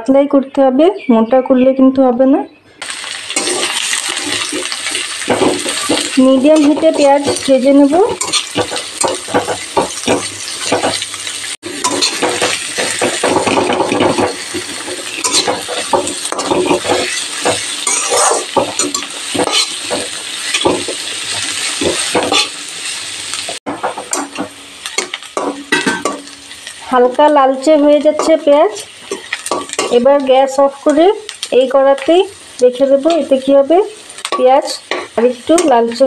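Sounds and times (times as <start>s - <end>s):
onions sizzling in oil: 2.8s - 36.0s
spatula scraping and knocking pan: 3.3s - 22.7s, 23.5s - 27.0s, 28.0s - 30.2s.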